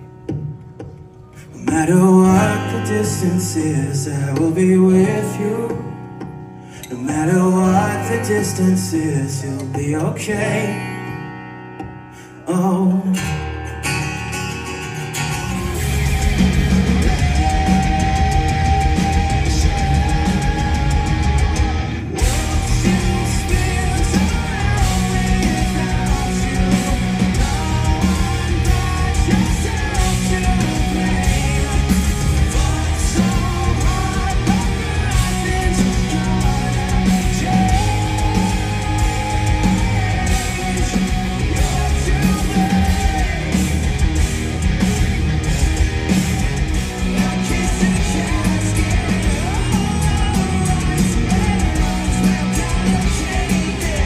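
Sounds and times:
live rock band playing: 0.0 - 54.0
person singing: 1.3 - 11.3, 12.1 - 44.2, 45.5 - 54.0.

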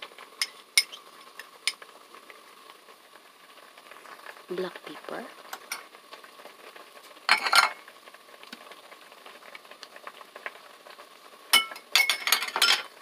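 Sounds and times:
soup boiling and bubbling: 0.0 - 13.0
dishware clattering against pot: 7.3 - 7.8, 11.6 - 12.9.

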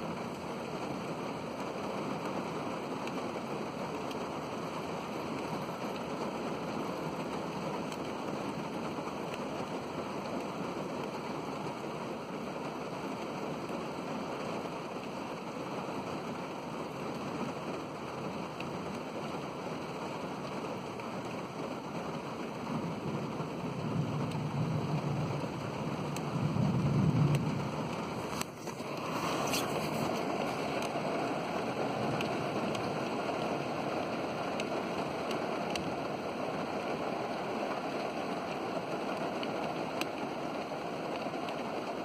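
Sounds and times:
steady rain falling: 0.0 - 42.0
thunder rumbling: 22.7 - 28.3.

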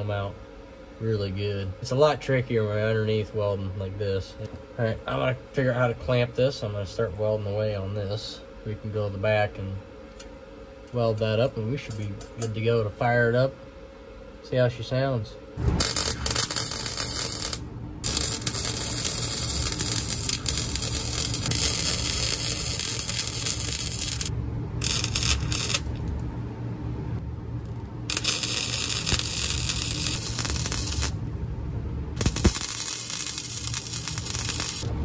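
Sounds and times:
steady low hum: 0.0 - 35.0
welder arc crackling and sizzling: 14.5 - 26.3, 27.6 - 31.4, 32.2 - 35.0.

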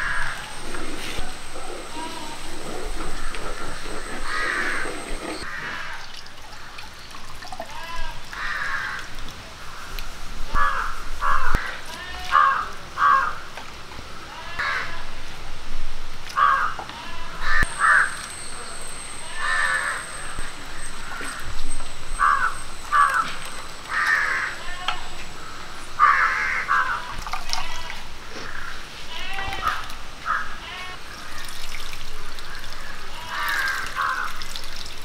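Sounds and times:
crows cawing: 0.0 - 6.0, 8.3 - 9.1, 9.7 - 13.5, 14.6 - 14.9, 16.4 - 16.8, 17.4 - 18.4, 19.3 - 27.3, 28.4 - 28.9, 29.6 - 31.5, 32.2 - 34.4
wet squelching and pouring: 27.1 - 28.1, 31.2 - 35.0.

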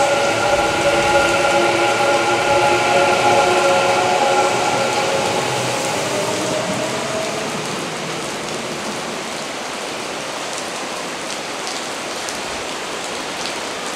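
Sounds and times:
electric train whine: 0.0 - 10.6
heavy rain on a roof: 0.0 - 13.9.

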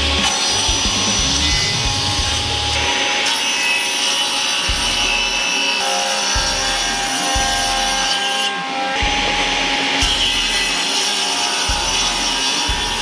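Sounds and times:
low thumps: 0.0 - 2.9
table saw cutting wood: 0.0 - 13.0.

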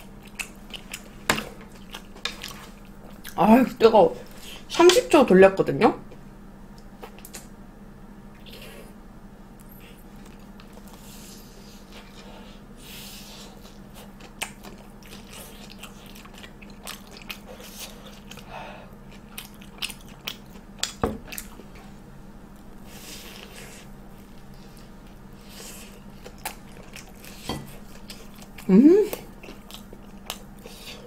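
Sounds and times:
crunchy chewing: 0.0 - 3.4, 13.3 - 21.9, 22.5 - 31.0.

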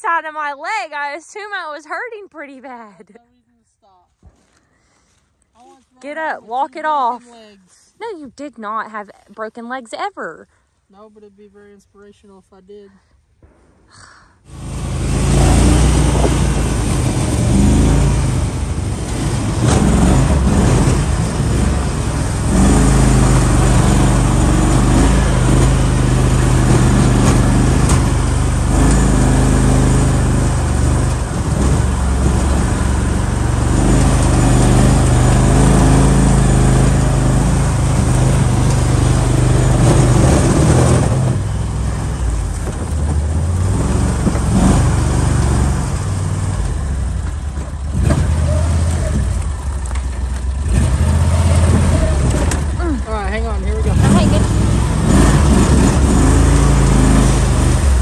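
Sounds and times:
utility vehicle engine running: 14.5 - 58.0.

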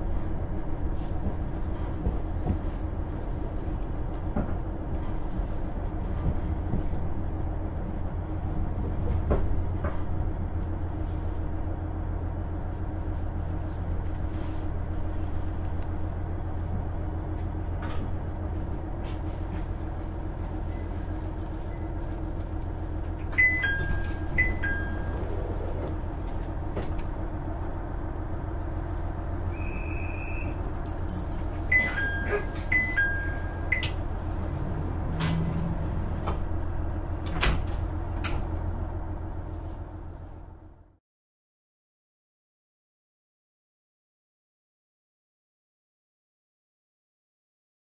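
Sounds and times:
diesel engine idling: 10.2 - 40.9
sliding doors: 21.6 - 27.2, 29.9 - 38.9
two-note electronic chime: 31.7 - 33.9
short beep: 31.7 - 34.0.

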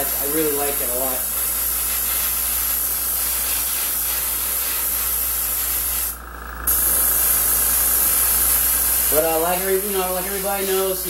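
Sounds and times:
airbrush hissing: 0.0 - 11.0.

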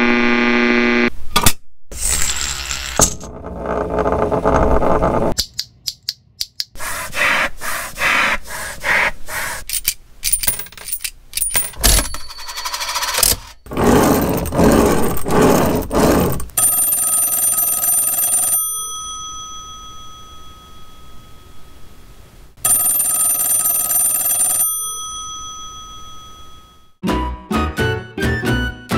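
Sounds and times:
toy cash register rattling: 9.7 - 18.5
telephone bell ringing: 12.0 - 14.3, 16.6 - 21.6, 22.6 - 27.0.

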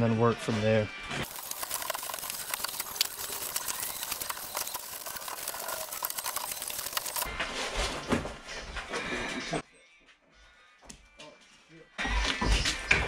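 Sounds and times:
foam crackling and scraping: 1.2 - 7.8.

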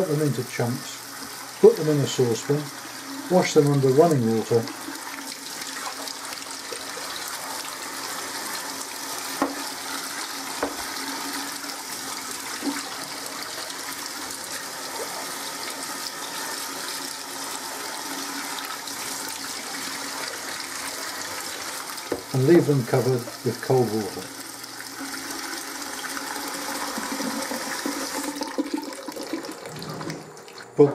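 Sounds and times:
tap water splashing into saucepan: 9.3 - 9.7, 10.5 - 11.0, 22.0 - 22.4.

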